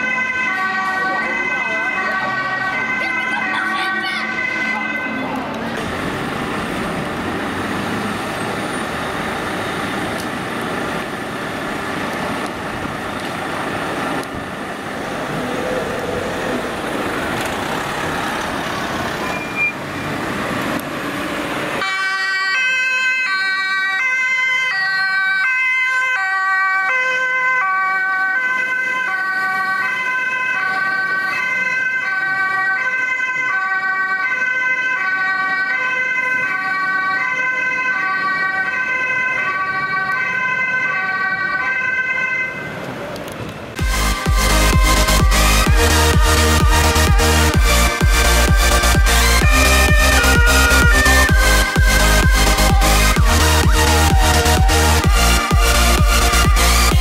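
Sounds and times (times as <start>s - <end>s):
fire engine two-tone siren: 0.0s - 9.8s, 14.3s - 20.8s, 21.8s - 42.9s, 43.8s - 57.0s
crowd noise: 0.8s - 10.5s, 42.6s - 57.0s.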